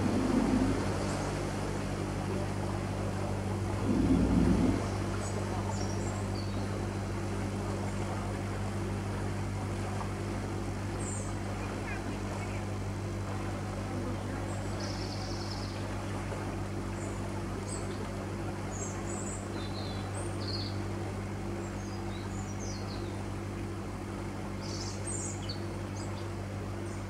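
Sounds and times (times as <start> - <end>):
diesel engine droning: 0.0 - 2.6, 3.3 - 5.8.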